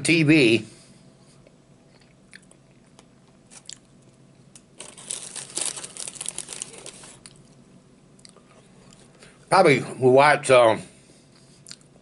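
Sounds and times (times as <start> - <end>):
food packaging crinkling: 4.6 - 7.6.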